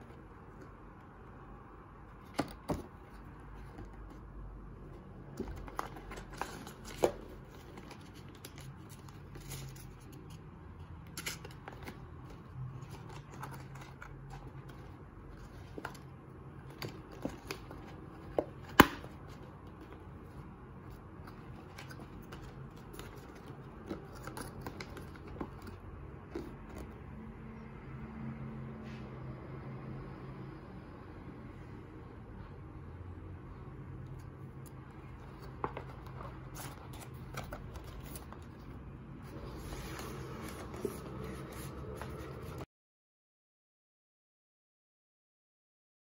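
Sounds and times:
cardboard rustling and scraping: 2.1s - 10.4s, 11.1s - 27.1s, 34.2s - 42.7s.

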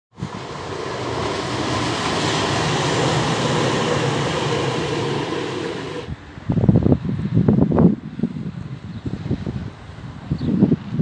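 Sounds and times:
tram passing: 0.1s - 6.4s
wind buffeting microphone: 0.1s - 11.0s.

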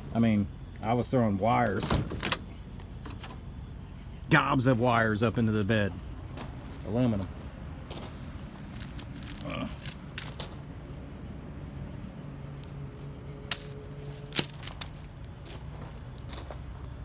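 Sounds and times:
steady low hum: 0.0s - 17.0s
footsteps on gravel: 5.6s - 10.8s, 12.5s - 17.0s.

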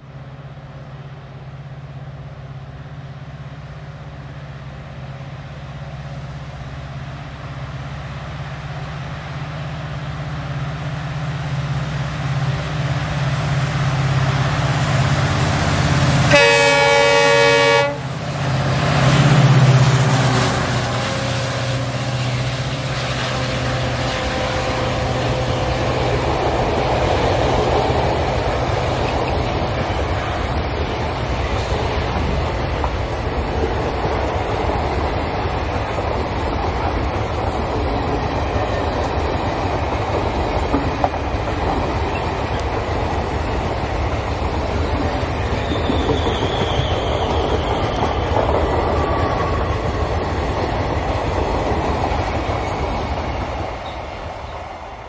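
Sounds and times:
diesel locomotive engine drone: 0.0s - 55.0s
train coaches rolling rumble: 0.0s - 55.0s
train horn blast: 16.3s - 18.1s, 23.2s - 25.6s.

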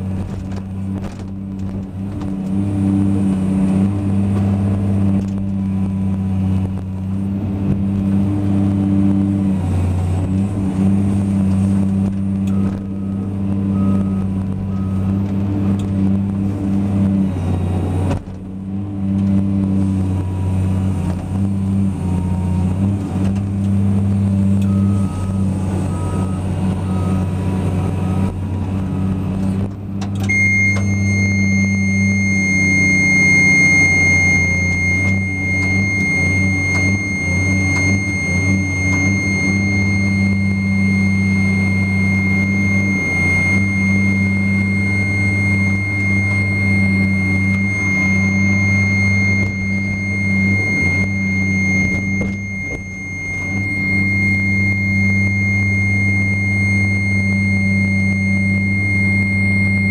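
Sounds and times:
diesel engine running: 0.0s - 59.9s
steady high whine: 0.0s - 59.9s
click: 29.6s - 30.9s.

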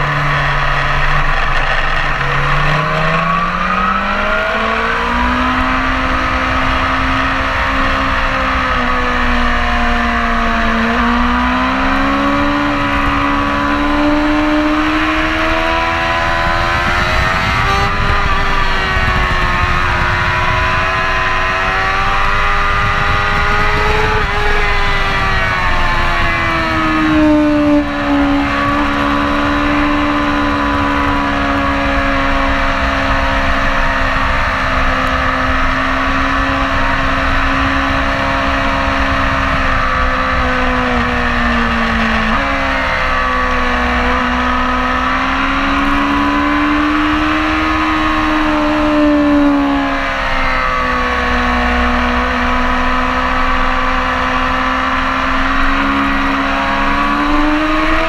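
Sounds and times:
motorcycle engine revving: 0.0s - 58.0s
wind rushing: 10.1s - 44.3s.

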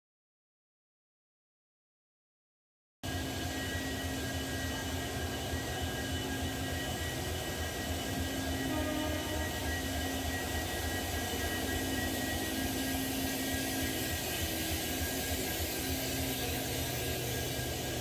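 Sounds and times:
diesel locomotive engine idling: 3.1s - 18.0s
faint whining tones: 3.4s - 18.0s.

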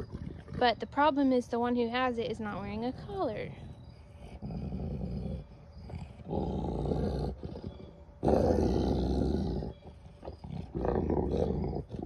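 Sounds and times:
dog growling: 0.0s - 1.0s, 2.7s - 12.0s.

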